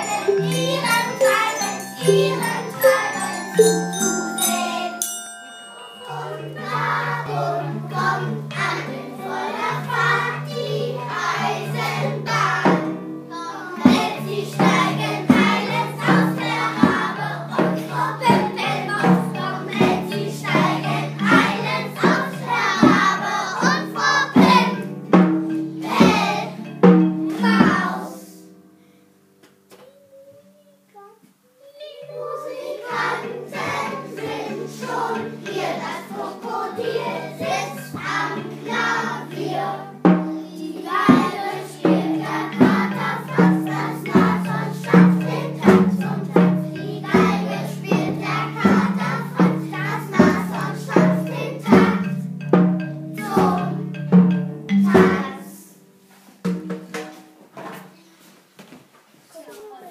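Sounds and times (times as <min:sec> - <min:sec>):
steady beat: 0:00.0 - 0:08.2, 0:33.1 - 0:55.3
children singing: 0:00.0 - 0:28.5, 0:31.6 - 0:55.8
held instrumental notes: 0:00.0 - 0:29.7, 0:31.8 - 0:58.2.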